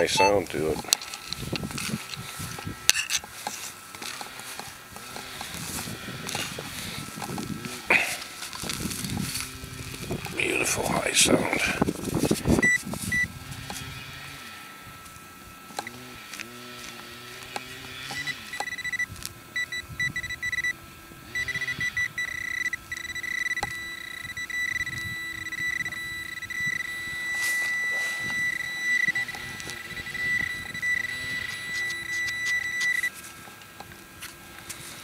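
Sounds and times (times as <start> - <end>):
metal detector beeping tone: 0.0 - 4.2, 12.6 - 13.4, 18.0 - 33.2.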